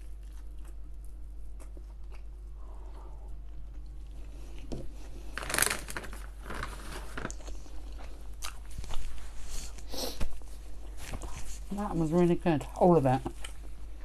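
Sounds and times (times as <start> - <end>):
close chewing crunches: 0.0 - 5.8, 6.6 - 9.9.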